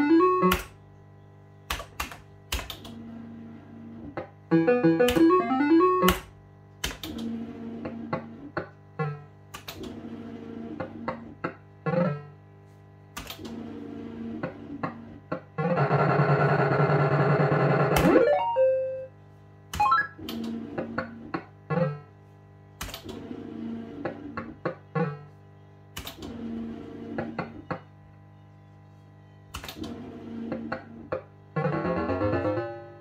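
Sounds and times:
electronic tune: 4.5s - 6.2s, 16.5s - 19.1s.

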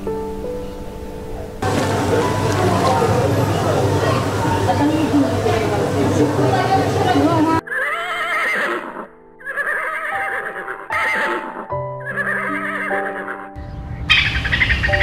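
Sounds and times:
soft piano music: 0.0s - 8.4s, 9.0s - 15.0s
horse whinnying: 7.6s - 13.5s.

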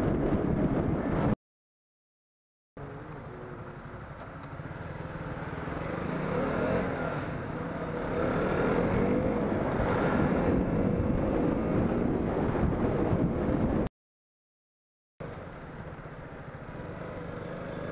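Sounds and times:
motorcycle engine accelerating: 2.8s - 13.9s, 16.5s - 17.9s.

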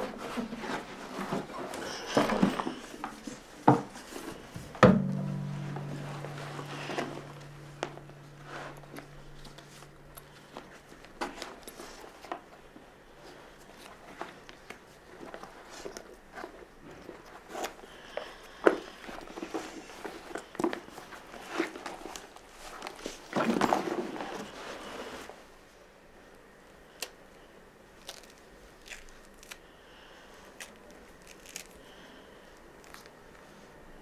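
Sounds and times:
hands rummaging in leather bag: 18.6s - 25.3s.

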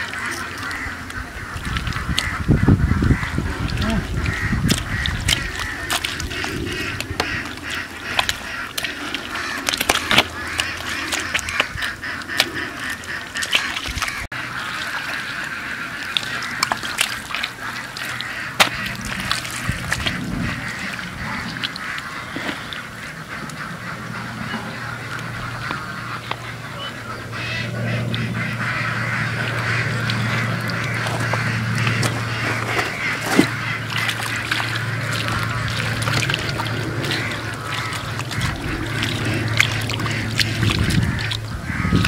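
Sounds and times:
low steady hum: 0.0s - 42.0s
waterfowl calling: 0.0s - 42.0s.

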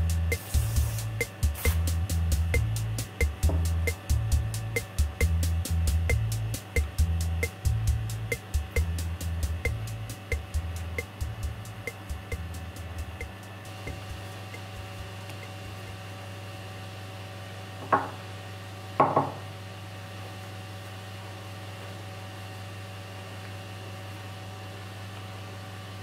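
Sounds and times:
low electrical hum: 0.0s - 26.0s
metal knocking on workbench: 17.8s - 18.2s, 19.0s - 19.5s.

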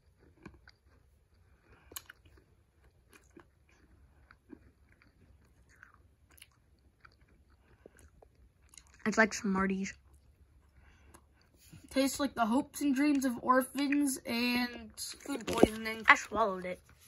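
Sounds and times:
faint gum chewing crunches: 0.0s - 9.2s, 9.9s - 11.9s.

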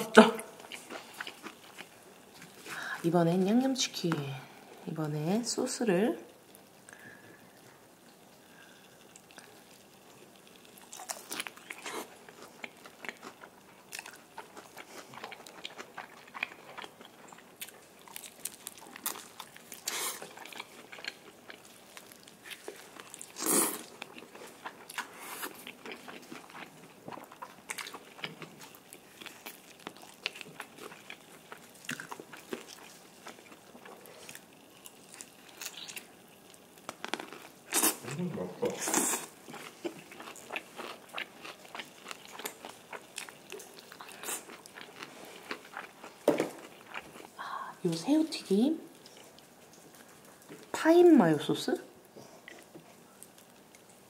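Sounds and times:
crunching fried chicken: 0.6s - 2.6s, 8.4s - 47.4s.

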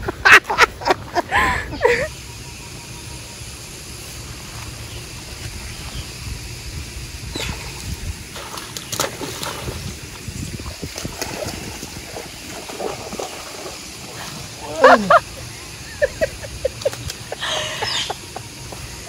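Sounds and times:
steady low rumble: 0.0s - 19.0s
fish splashing in water: 7.4s - 15.8s.

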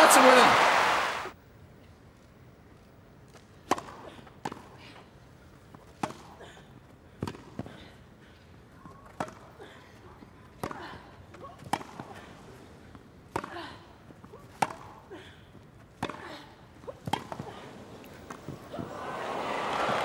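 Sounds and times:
tennis ball bouncing: 16.0s - 16.2s, 16.9s - 19.0s.

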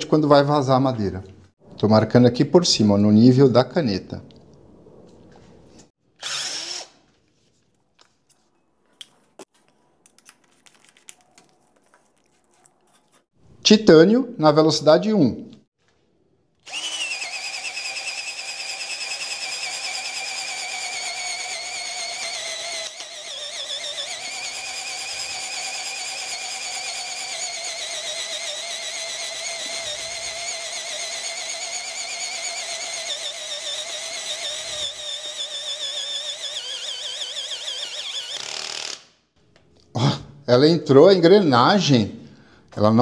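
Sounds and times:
cordless drill boring into wood: 6.2s - 7.0s, 16.6s - 39.1s.

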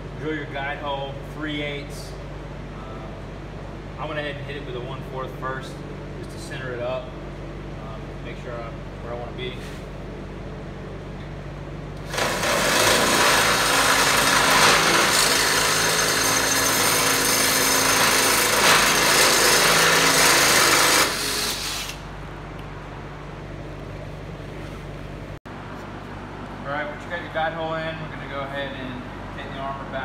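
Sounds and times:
cordless drill boring sheet metal: 12.0s - 22.0s.

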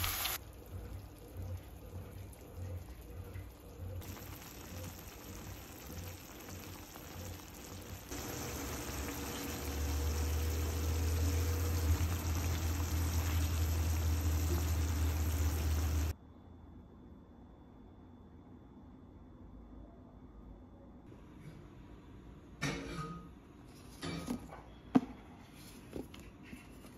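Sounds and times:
food bubbling in a frying pan: 0.0s - 16.1s
deep hum: 6.6s - 16.1s.

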